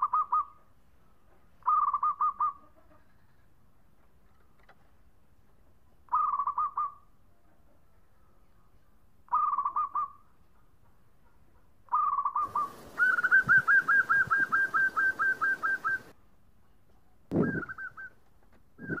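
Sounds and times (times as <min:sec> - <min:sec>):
dove cooing: 0:01.6 - 0:03.0, 0:09.3 - 0:10.2, 0:11.9 - 0:16.1, 0:17.3 - 0:18.2, 0:18.8 - 0:19.0
hiss: 0:12.4 - 0:15.5.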